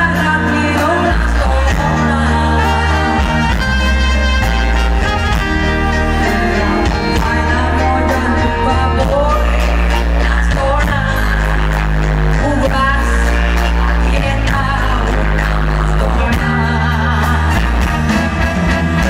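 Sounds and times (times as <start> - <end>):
bass guitar: 0.0 - 19.0
electric guitars: 0.0 - 19.0
woman singing lead: 0.0 - 19.0
drum kit beat: 1.4 - 11.8.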